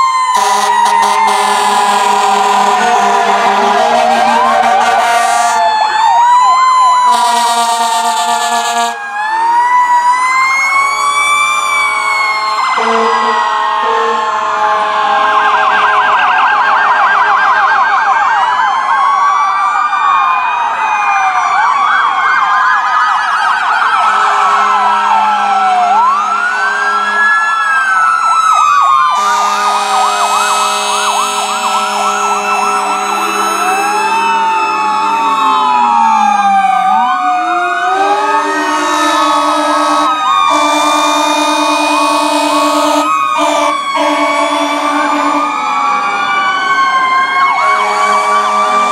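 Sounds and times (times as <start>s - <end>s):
emergency sirens wailing and yelping: 0.0s - 48.9s.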